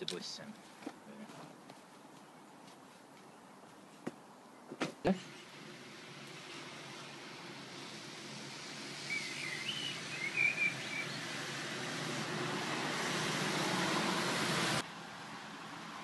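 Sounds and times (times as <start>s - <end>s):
bus engine: 5.1s - 16.0s
bus tyres hissing on wet road: 5.2s - 16.0s
high chirps: 8.9s - 11.3s.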